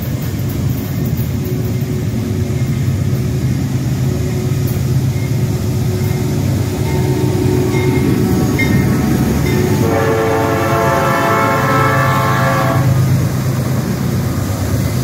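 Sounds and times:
train rumbling past: 0:00.0 - 0:15.0
locomotive air horn chord: 0:09.6 - 0:13.1.

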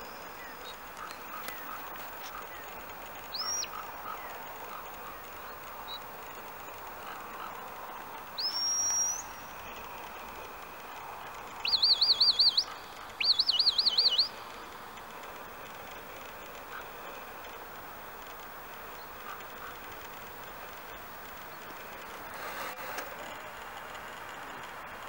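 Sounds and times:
warbling trilled whistles: 0:08.4 - 0:09.8, 0:11.6 - 0:14.7.

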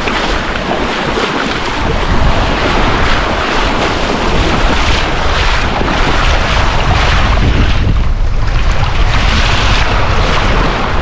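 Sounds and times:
surf washing around boots: 0:00.0 - 0:11.0
wind buffeting microphone: 0:00.0 - 0:11.0.

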